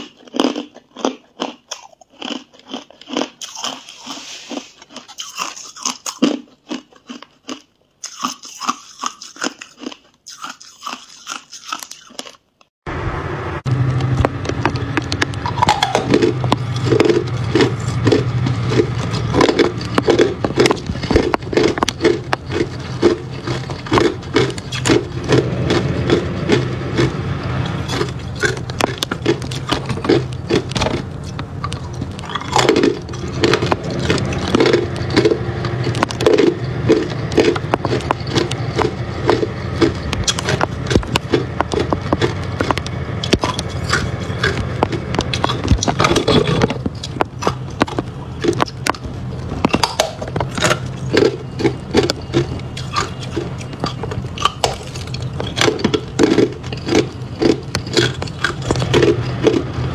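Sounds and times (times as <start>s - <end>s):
ice being chewed: 0.0s - 12.7s, 14.3s - 59.9s
steady low hum: 12.9s - 59.9s.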